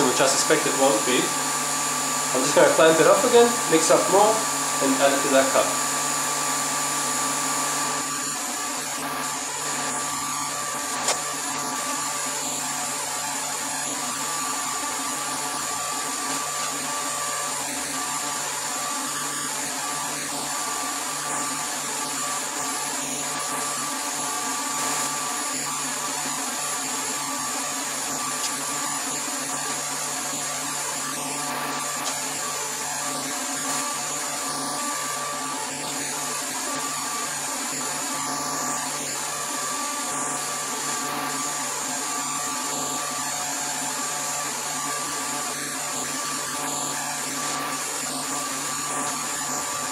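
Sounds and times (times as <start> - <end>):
vacuum pump humming and whining: 0.0 - 49.9.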